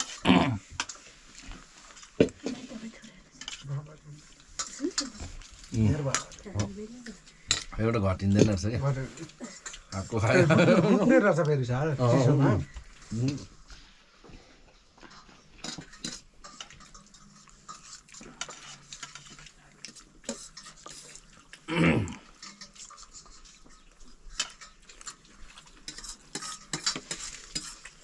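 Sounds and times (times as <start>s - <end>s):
cutlery clinking on steel plates: 4.5s - 11.1s, 15.1s - 21.5s, 22.2s - 28.0s
noodles being slurped: 15.2s - 28.0s.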